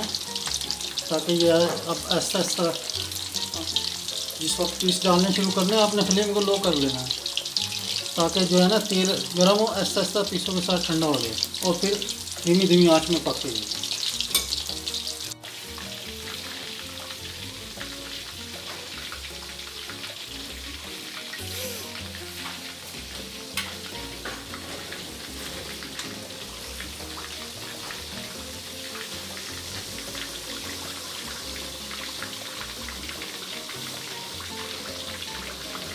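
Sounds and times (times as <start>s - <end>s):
chicken deep-frying in oil: 0.0s - 35.9s
metal skimmer stirring: 14.3s - 14.6s.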